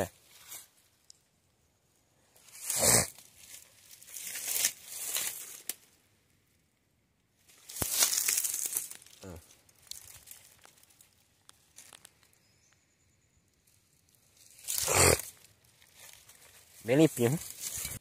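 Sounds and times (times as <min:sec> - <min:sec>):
dry leaves and brush rustling: 0:00.1 - 0:01.1, 0:02.3 - 0:06.1, 0:07.4 - 0:12.4, 0:13.6 - 0:18.0.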